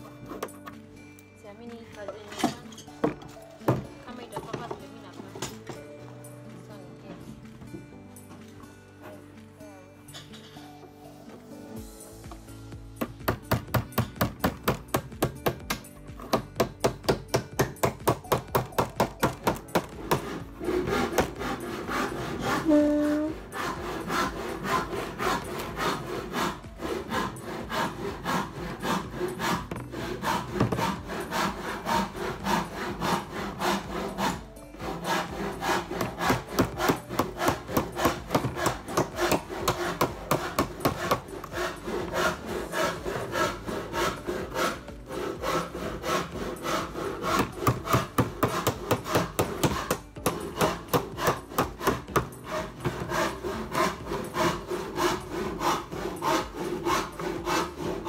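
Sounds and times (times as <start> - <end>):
hammer striking nails into wood: 13.0 - 21.6, 27.2 - 31.1, 35.1 - 43.5, 46.9 - 54.7.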